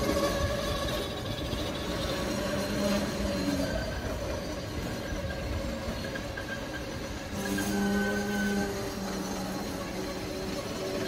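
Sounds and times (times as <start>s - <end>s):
high tone from wheels: 0.0s - 11.0s
train wheels rumbling on rails: 0.0s - 11.0s.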